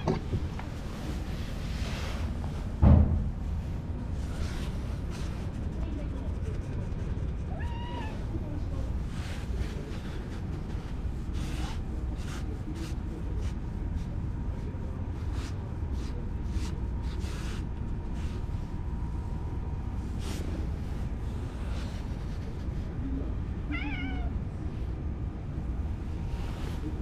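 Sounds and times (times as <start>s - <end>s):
steady low rumble: 0.0s - 27.0s
cat meowing: 7.5s - 8.2s, 23.7s - 24.4s.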